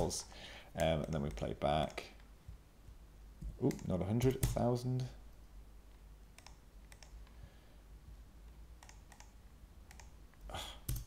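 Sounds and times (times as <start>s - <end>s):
low room hum: 0.0s - 11.0s
keyboard and mouse clicks: 0.7s - 2.6s, 3.4s - 5.1s, 5.9s - 7.4s, 8.5s - 11.0s.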